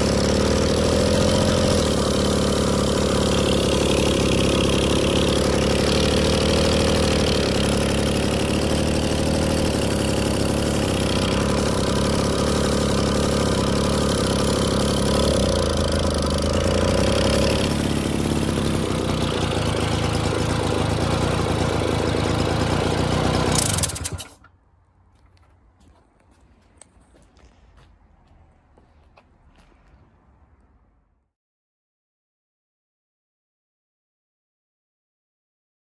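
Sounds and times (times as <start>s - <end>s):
moped engine idling: 0.0s - 24.5s.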